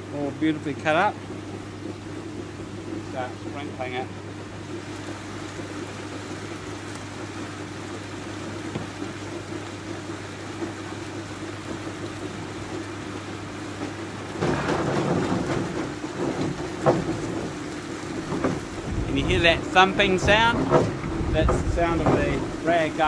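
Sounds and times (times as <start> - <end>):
roll churning water: 0.0 - 23.0
motor humming: 15.0 - 23.0.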